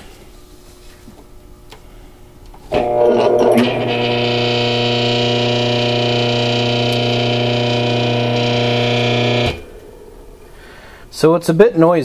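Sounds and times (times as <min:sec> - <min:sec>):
electric motor humming: 0:02.7 - 0:10.6.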